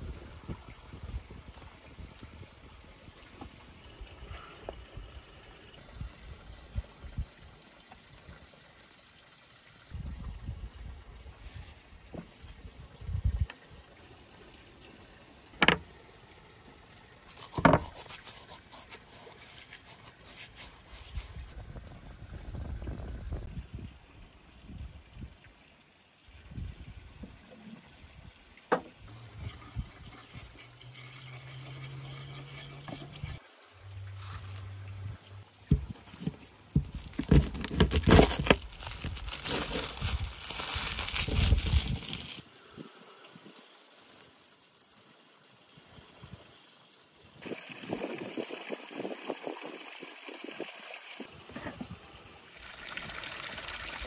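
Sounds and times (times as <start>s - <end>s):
bowls knocking on wooden board: 15.6s - 15.8s
dried herbs crackling: 34.1s - 42.4s, 43.5s - 44.5s.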